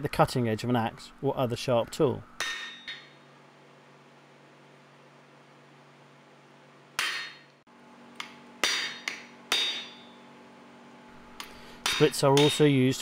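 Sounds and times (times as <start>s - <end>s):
hammer striking chisel on metal: 2.4s - 3.2s, 7.0s - 7.6s, 8.2s - 10.3s, 11.4s - 13.0s.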